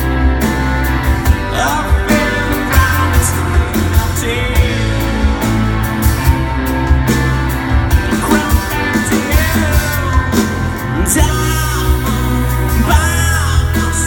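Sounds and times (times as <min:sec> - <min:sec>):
live rock band playing: 0:00.0 - 0:14.0
person singing: 0:01.2 - 0:05.6, 0:07.9 - 0:14.0.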